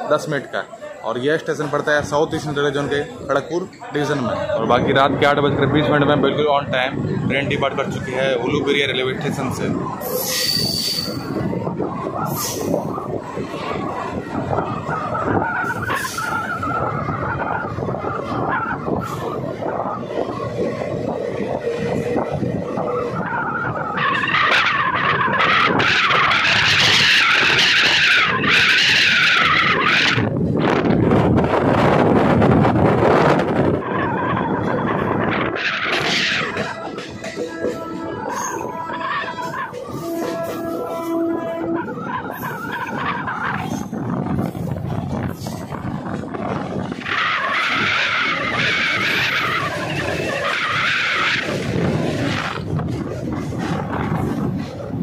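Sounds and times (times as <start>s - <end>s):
train coach rumbling: 0.0s - 55.0s
train wheels screeching: 9.9s - 30.3s, 33.9s - 45.7s, 46.6s - 55.0s.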